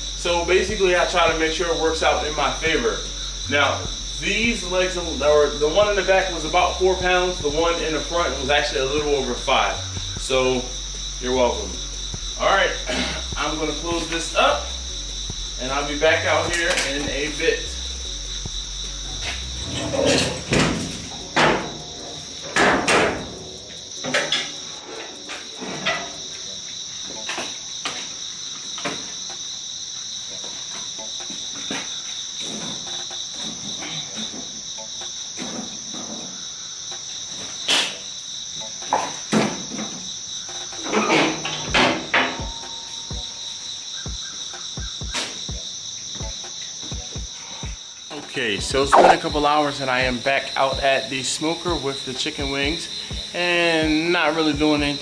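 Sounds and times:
high insect trill: 0:00.0 - 0:55.0
metal clanks and knocks: 0:19.2 - 0:24.6, 0:38.8 - 0:42.8.

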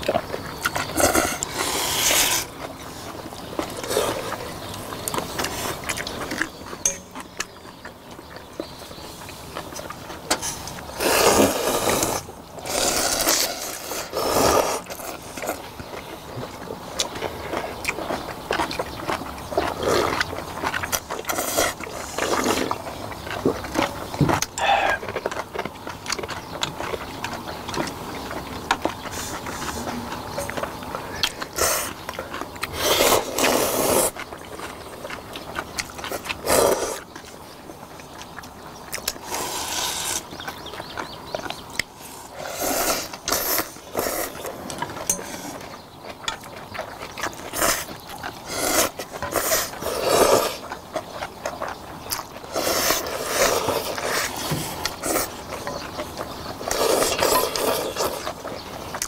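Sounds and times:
people slurping noodles: 0:00.0 - 0:06.5, 0:10.4 - 0:15.8, 0:16.9 - 0:25.6, 0:28.8 - 0:37.2, 0:38.9 - 0:40.5, 0:41.9 - 0:45.8, 0:46.4 - 0:59.0
chewing: 0:00.0 - 0:59.0.

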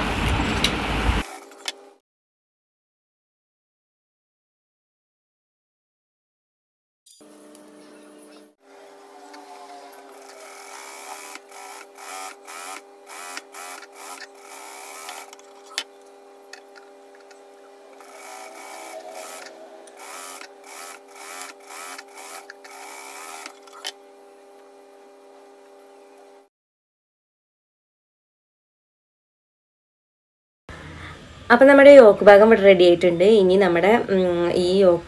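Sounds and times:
sewing machine stitching: 0:09.2 - 0:15.8, 0:16.5 - 0:24.0.

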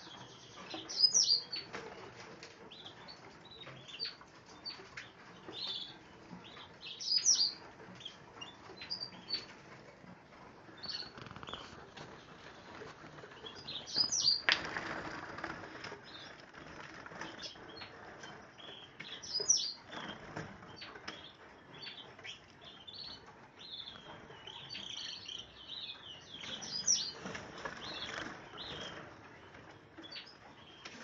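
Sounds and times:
finches chirping: 0:00.0 - 0:01.8, 0:02.7 - 0:09.6, 0:10.7 - 0:31.0
wing flutter: 0:09.3 - 0:18.5.

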